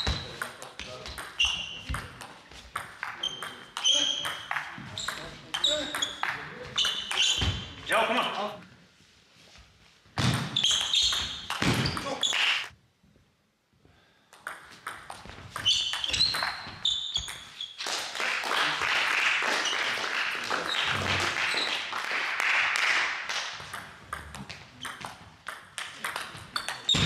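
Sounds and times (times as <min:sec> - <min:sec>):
shoes squeaking on floor: 0:00.0 - 0:08.4, 0:10.2 - 0:12.7, 0:15.2 - 0:17.8, 0:19.5 - 0:20.1, 0:26.4 - 0:27.0.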